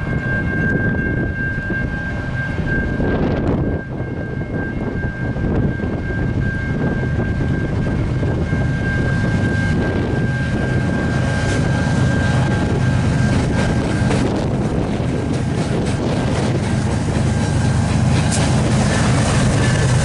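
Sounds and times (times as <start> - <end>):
diesel locomotive engine rumble: 0.0 - 20.0.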